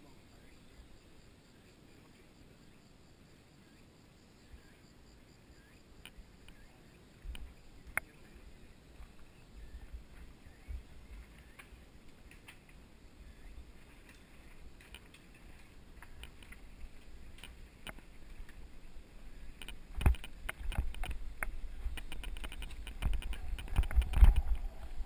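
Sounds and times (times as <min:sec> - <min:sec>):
bike clicks and rattles: 0:11.1 - 0:12.9, 0:13.8 - 0:18.7, 0:19.5 - 0:25.0
bike rolling over gravel: 0:19.6 - 0:25.0.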